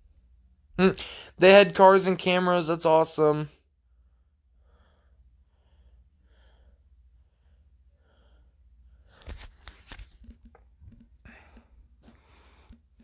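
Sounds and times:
faint breathing: 0:01.0 - 0:01.4, 0:03.9 - 0:09.2, 0:11.2 - 0:13.0.

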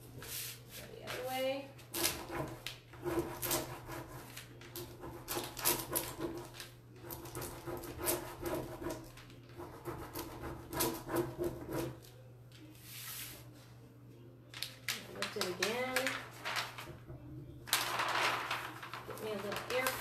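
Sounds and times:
plastic sheet crinkling: 0:14.5 - 0:17.0, 0:17.6 - 0:20.0.

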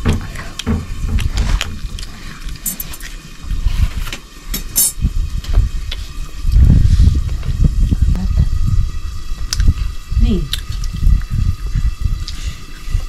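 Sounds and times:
sharp clicks and knocks: 0:00.0 - 0:02.1
wind rumbling on microphone: 0:00.0 - 0:02.5, 0:04.9 - 0:13.0.

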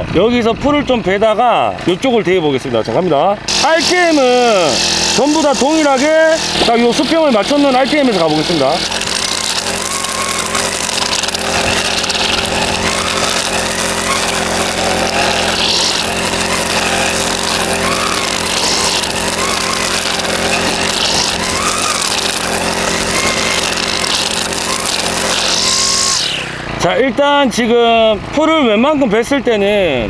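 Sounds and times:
brush cutter engine running: 0:00.0 - 0:29.0
nylon line cutting grass: 0:03.5 - 0:27.0.

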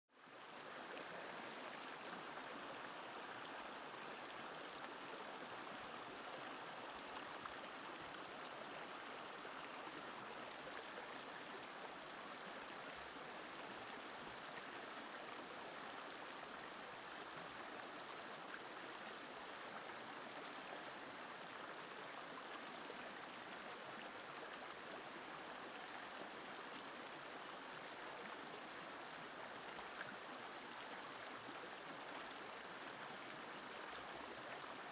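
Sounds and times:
stream running over rocks: 0:00.2 - 0:34.9.

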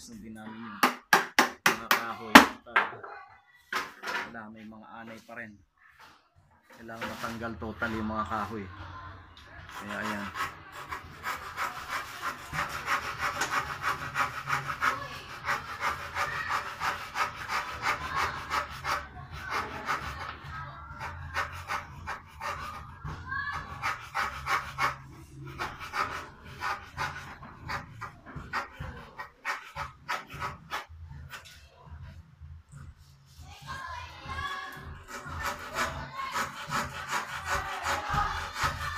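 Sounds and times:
scraping and knocking wood: 0:03.7 - 0:04.4, 0:09.7 - 0:20.4, 0:21.0 - 0:31.6, 0:34.9 - 0:38.9.

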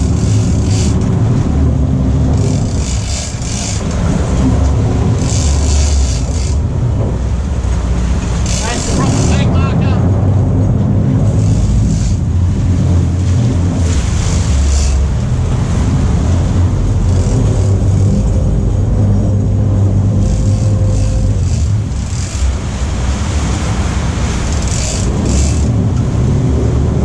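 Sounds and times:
boat engines droning: 0:00.0 - 0:27.0
water churning and splashing: 0:00.0 - 0:27.0.

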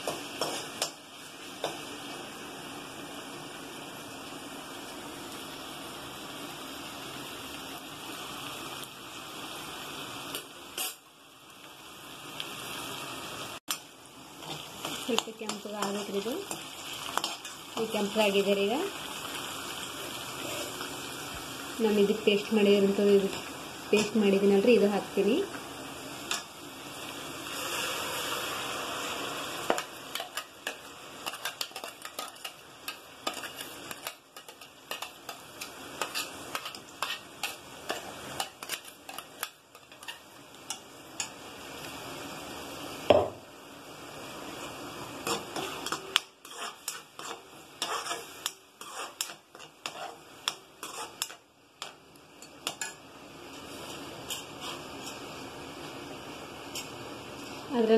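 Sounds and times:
masala sizzling in hot oil: 0:00.0 - 0:57.9
metal spoon scraping pan: 0:29.7 - 0:41.3, 0:45.2 - 0:53.0, 0:53.8 - 0:55.3.

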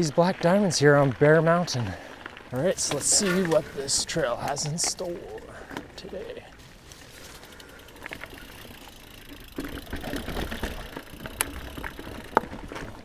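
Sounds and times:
bike tyres rolling and rattling: 0:00.0 - 0:13.0.

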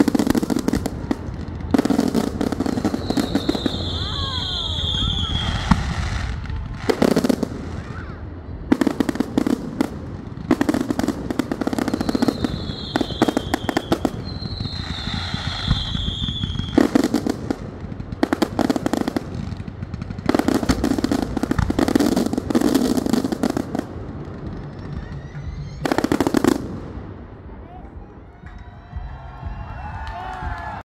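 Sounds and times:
firework whistle: 0:00.0 - 0:09.9, 0:10.5 - 0:17.3, 0:21.8 - 0:27.1
fireworks crackling pops: 0:00.0 - 0:28.7.

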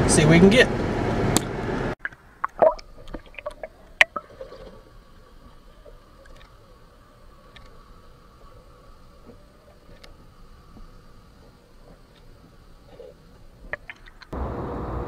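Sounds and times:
sharp underwater clicks and knocks: 0:13.7 - 0:14.4.

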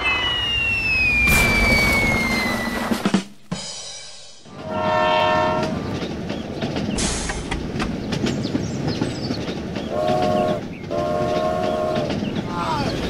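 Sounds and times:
train rattling on rails: 0:01.4 - 0:13.0
train horn blowing: 0:04.5 - 0:06.0, 0:09.9 - 0:12.2.

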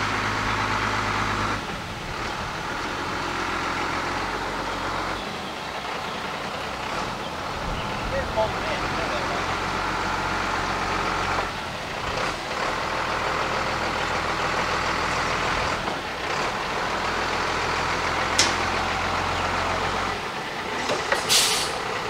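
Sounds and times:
diesel truck engine running: 0:00.0 - 0:22.0
short sharp air hiss: 0:21.1 - 0:21.8.

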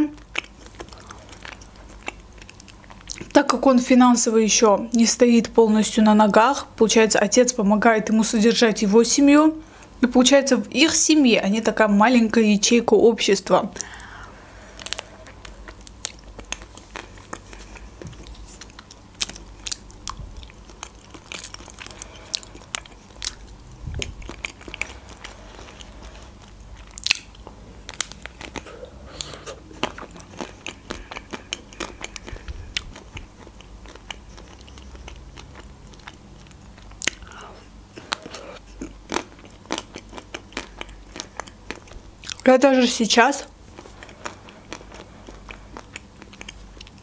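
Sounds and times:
soft chewing and mouth sounds: 0:00.0 - 0:03.4, 0:13.7 - 0:42.5, 0:43.4 - 0:47.0.

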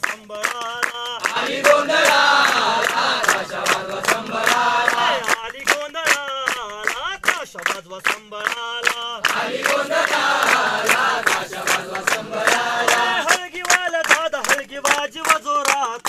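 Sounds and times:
hand-clapping: 0:00.0 - 0:16.0
group chanting a song: 0:01.1 - 0:05.7, 0:09.2 - 0:13.6.

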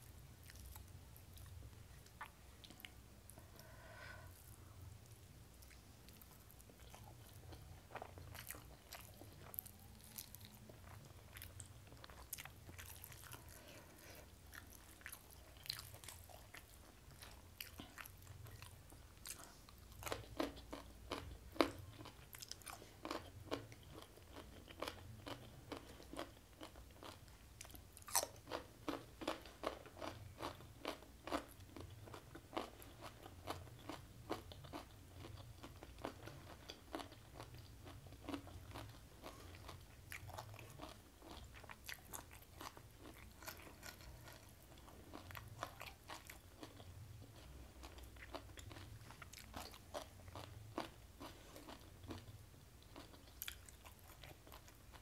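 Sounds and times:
chewing and crunching food: 0:00.0 - 0:55.0.

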